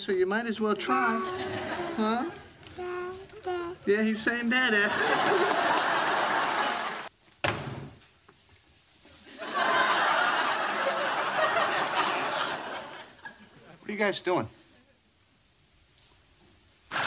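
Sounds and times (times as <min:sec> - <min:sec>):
studio audience laughing: 0:01.1 - 0:02.2, 0:04.8 - 0:07.1, 0:09.3 - 0:13.6.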